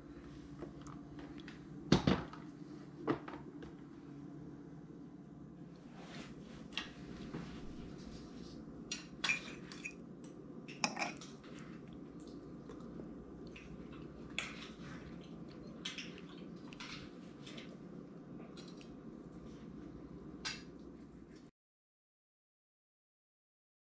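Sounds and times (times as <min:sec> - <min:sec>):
steady low hum: 0:00.0 - 0:21.5
clinks and clatters of dishes: 0:08.9 - 0:11.5.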